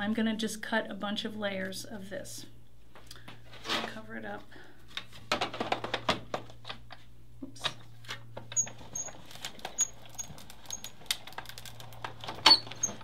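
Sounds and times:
crank squeaking: 0:08.6 - 0:11.0, 0:12.4 - 0:13.0.

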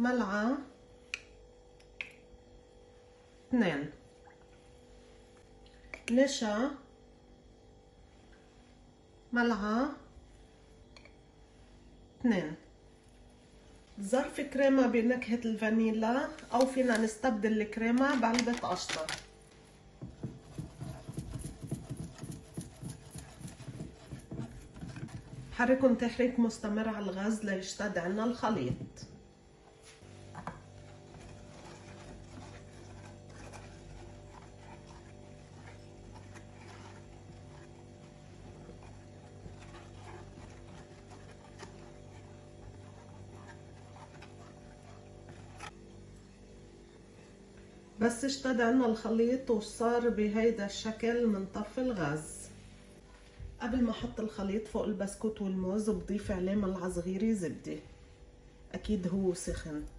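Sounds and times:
low steady hum: 0:00.0 - 0:59.9
whisk scraping a saucepan: 0:20.0 - 0:28.8, 0:29.9 - 0:45.8.

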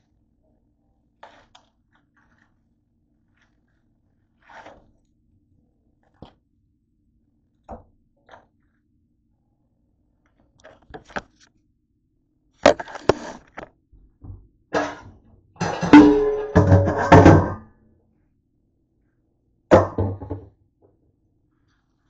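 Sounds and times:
knocks and clatter on kitchen counter: 0:15.6 - 0:17.6, 0:19.7 - 0:21.0.

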